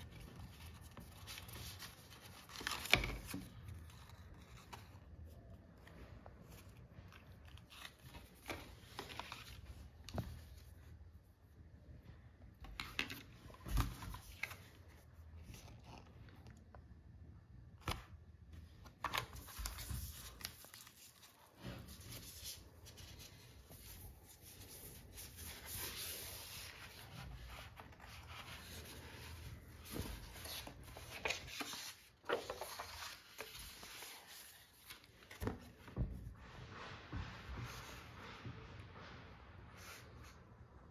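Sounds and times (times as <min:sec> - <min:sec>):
cardboard and paper rustling: 0:00.0 - 0:11.0, 0:12.6 - 0:16.6, 0:18.6 - 0:40.4.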